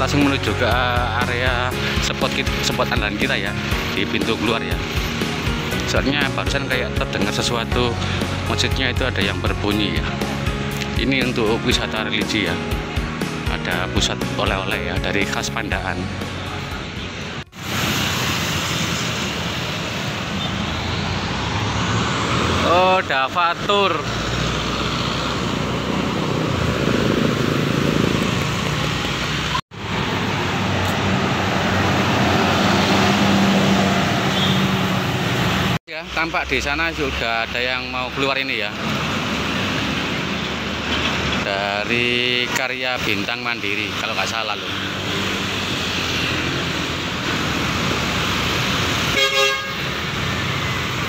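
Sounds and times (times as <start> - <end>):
horn toot: 34.2 - 35.0, 49.1 - 50.0.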